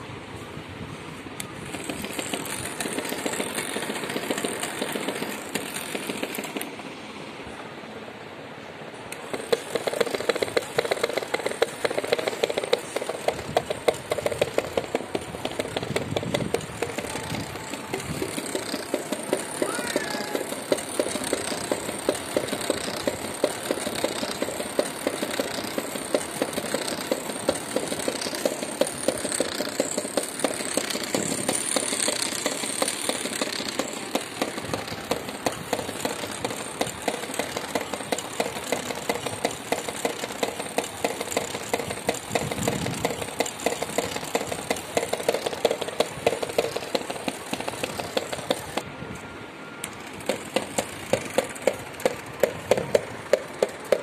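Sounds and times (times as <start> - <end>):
motor and gears whirring: 1.4 - 6.8, 9.1 - 49.2, 49.8 - 54.0
high wavering motor whine: 9.2 - 52.4.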